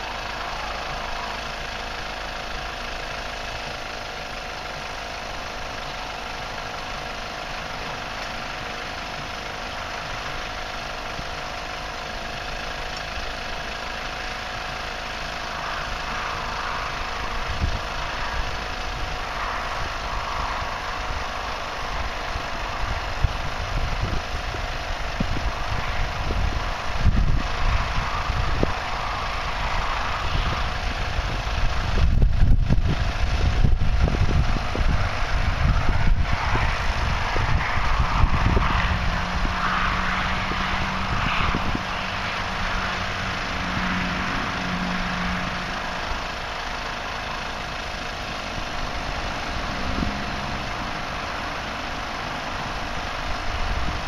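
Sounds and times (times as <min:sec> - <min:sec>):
wind buffeting microphone: 0:15.9 - 0:44.6, 0:47.7 - 0:54.0.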